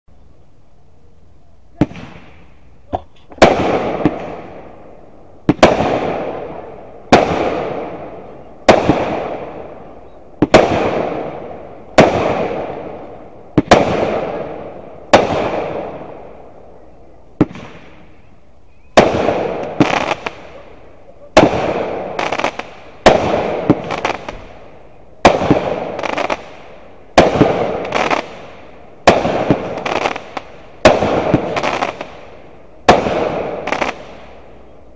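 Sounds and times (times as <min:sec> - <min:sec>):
loud firework bangs: 0:01.8 - 0:16.7, 0:17.4 - 0:18.3, 0:18.9 - 0:34.7
firework pops: 0:05.5 - 0:06.3, 0:17.4 - 0:18.0.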